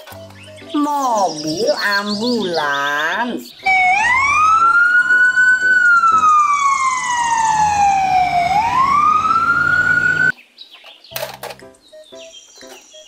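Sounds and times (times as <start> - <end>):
ambulance siren wailing: 3.6 - 10.3.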